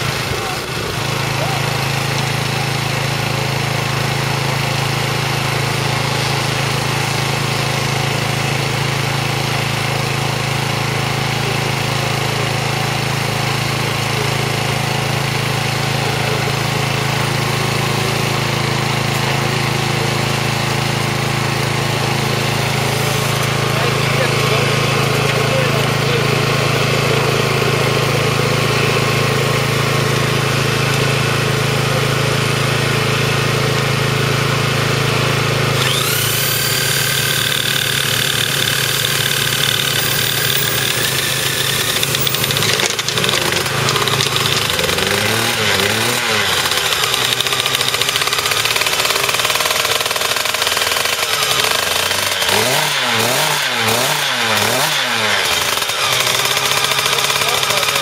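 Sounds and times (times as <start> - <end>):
petrol generator running: 0.0 - 58.0
small engine revving: 0.0 - 58.0
electric drill whining: 35.6 - 58.0.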